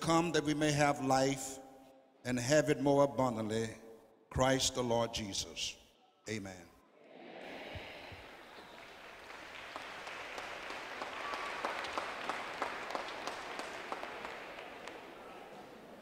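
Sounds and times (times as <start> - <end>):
audience applauding: 7.7 - 16.0.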